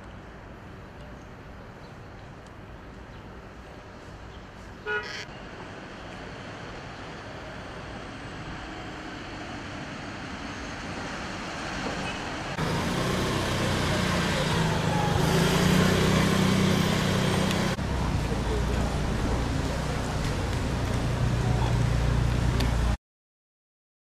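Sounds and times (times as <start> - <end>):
street traffic noise: 0.0 - 23.0
low engine hum: 12.6 - 23.0.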